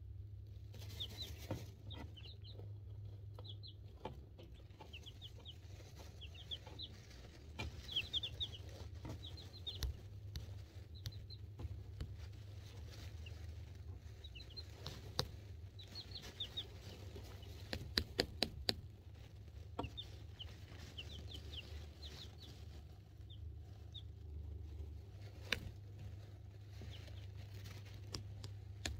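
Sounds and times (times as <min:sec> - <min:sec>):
chicks peeping: 0:00.4 - 0:28.9
sharp taps: 0:17.6 - 0:18.8.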